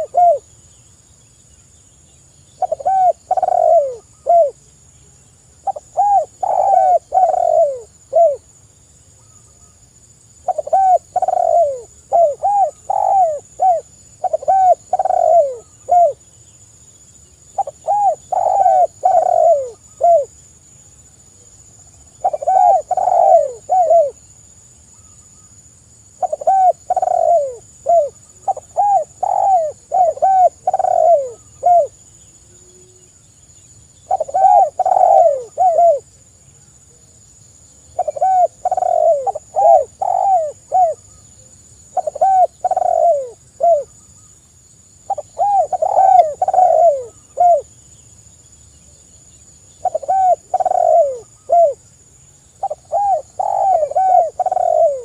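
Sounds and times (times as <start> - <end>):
dove cooing: 0.0 - 0.5, 2.6 - 4.6, 5.6 - 8.5, 10.4 - 16.2, 17.6 - 20.3, 22.2 - 24.2, 26.2 - 33.1, 34.0 - 36.1, 38.0 - 41.2, 41.9 - 43.9, 45.1 - 47.7, 49.8 - 51.8, 52.6 - 55.0.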